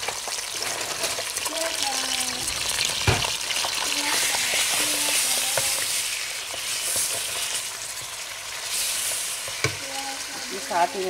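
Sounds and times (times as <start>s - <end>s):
meat sizzling in oil: 0.0s - 11.0s
spatula scraping and knocking pot: 4.2s - 8.1s.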